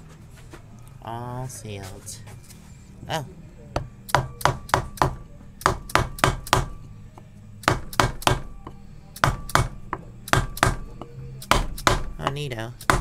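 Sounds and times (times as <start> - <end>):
hammer blows on wooden block: 3.8 - 13.0.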